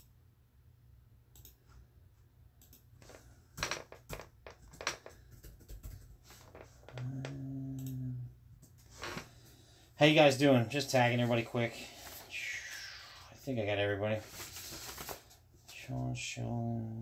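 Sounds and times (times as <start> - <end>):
steady low hum: 5.3 - 17.0.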